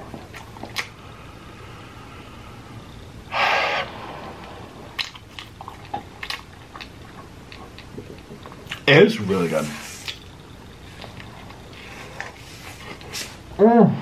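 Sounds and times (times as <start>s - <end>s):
close chewing mouth sounds: 0.0s - 1.0s, 4.2s - 8.9s.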